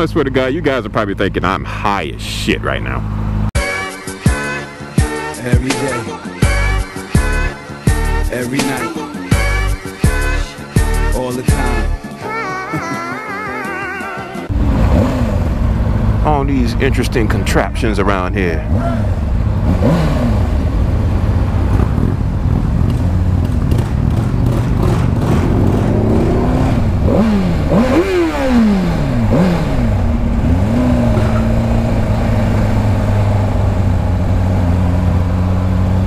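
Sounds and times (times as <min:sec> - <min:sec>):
motorcycle engine revving: 0:14.5 - 0:36.0.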